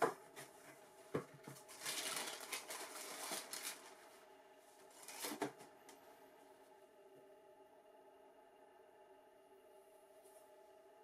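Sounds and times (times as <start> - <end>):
tissue paper crackling: 1.6 - 4.2, 4.9 - 5.4.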